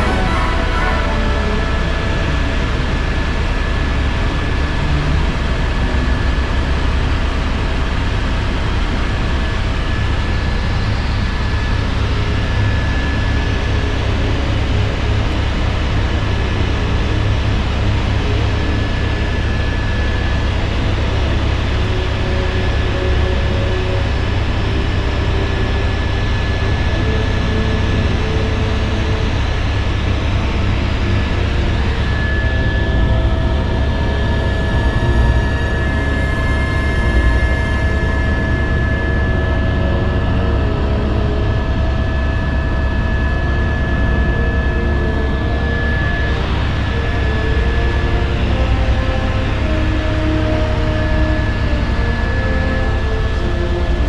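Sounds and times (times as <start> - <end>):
thin high whine: 0.0 - 5.4, 17.3 - 54.0
helicopter rotor and engine rumble: 0.0 - 54.0.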